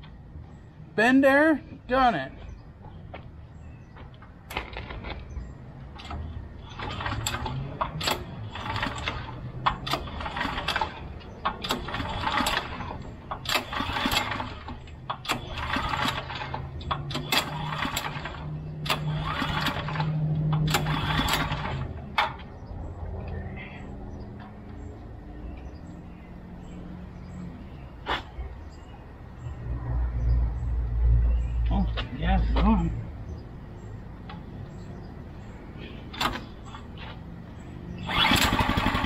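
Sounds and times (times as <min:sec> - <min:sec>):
small gas engine revving: 0:06.8 - 0:22.0, 0:37.8 - 0:39.0.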